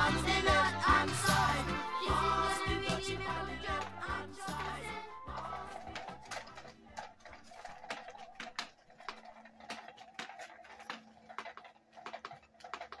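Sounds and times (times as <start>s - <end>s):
ticking clicks: 0.0s - 13.0s
toy motor hum: 0.0s - 13.0s.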